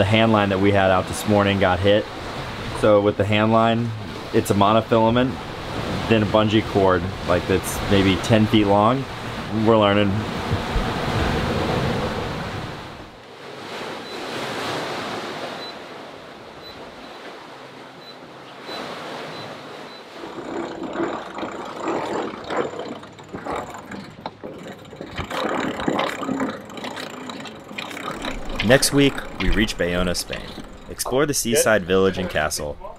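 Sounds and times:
wind and rushing sea water: 0:00.0 - 0:32.9
knocks and clicks: 0:19.4 - 0:31.5.

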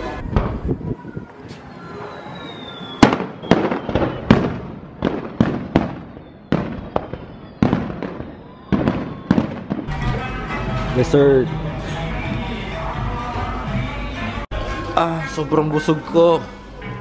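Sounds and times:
fireworks bursting with sharp bangs: 0:00.0 - 0:10.2
thin falling whistle: 0:01.8 - 0:04.4, 0:06.0 - 0:09.7.

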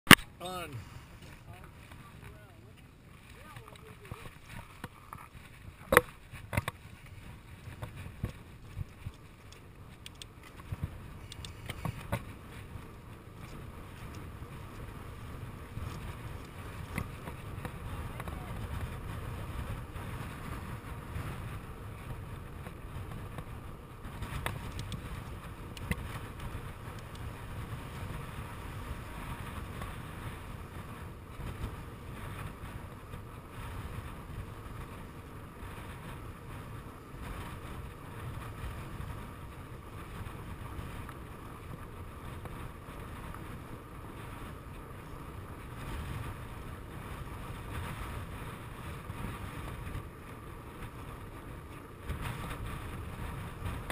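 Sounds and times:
wind on microphone: 0:00.1 - 0:53.9
sharp clicks: 0:09.1 - 0:10.3, 0:11.2 - 0:11.9.

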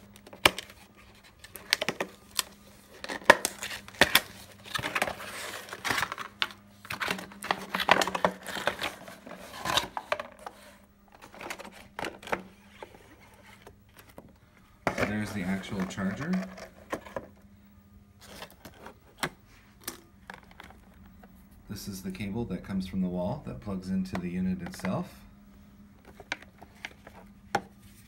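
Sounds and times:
packaging rustling and crinkling: 0:00.0 - 0:14.3, 0:14.9 - 0:17.3.

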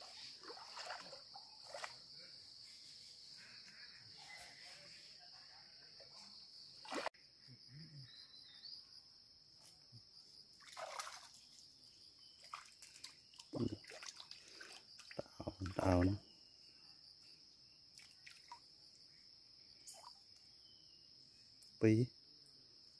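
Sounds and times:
water splashing and sloshing: 0:00.0 - 0:02.2, 0:06.8 - 0:07.1, 0:10.6 - 0:16.1, 0:17.9 - 0:18.7
high insect drone: 0:00.0 - 0:22.9.

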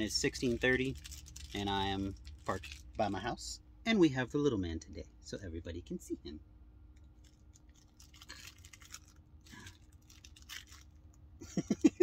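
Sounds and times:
plush toy rustling and crinkling: 0:00.4 - 0:03.1, 0:07.2 - 0:11.1
man laughing: 0:11.4 - 0:12.0.

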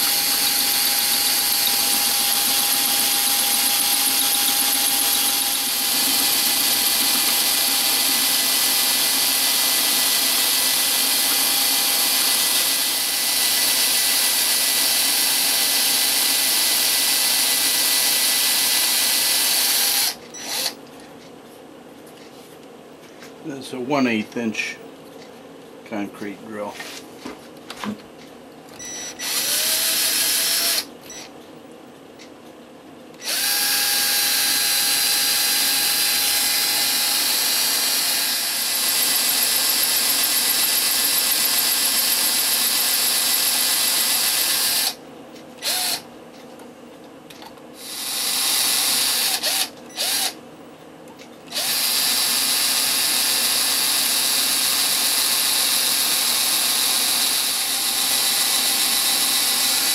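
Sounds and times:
rotary tool drilling whine: 0:00.0 - 0:20.8, 0:28.8 - 0:31.3, 0:33.2 - 0:45.0, 0:45.6 - 0:46.0, 0:47.8 - 0:50.4, 0:51.5 - 0:59.9.

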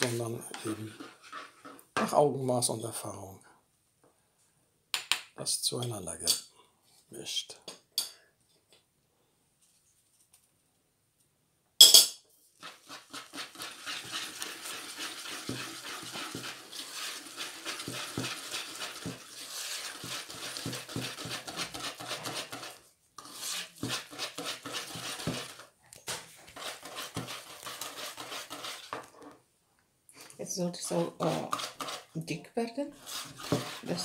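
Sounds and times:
sharp clink: 0:11.8 - 0:12.2
whisk beating batter in a bowl: 0:12.6 - 0:25.7, 0:26.5 - 0:29.1, 0:30.9 - 0:32.2, 0:33.0 - 0:34.0.

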